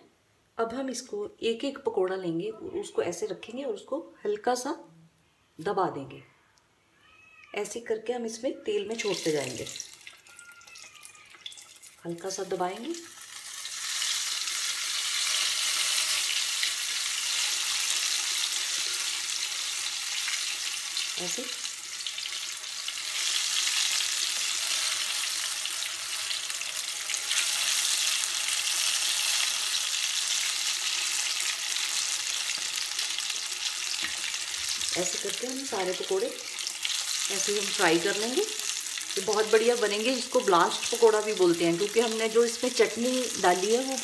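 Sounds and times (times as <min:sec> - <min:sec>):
oil sizzling while deep-frying: 0:08.9 - 0:44.0.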